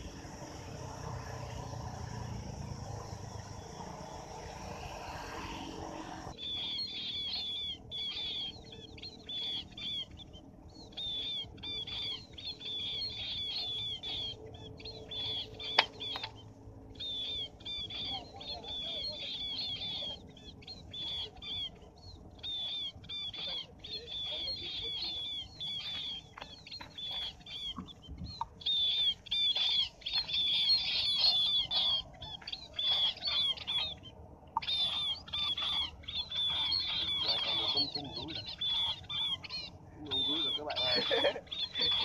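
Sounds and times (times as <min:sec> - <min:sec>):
low steady rushing noise: 0:00.0 - 0:42.0
small birds chirping: 0:00.0 - 0:42.0.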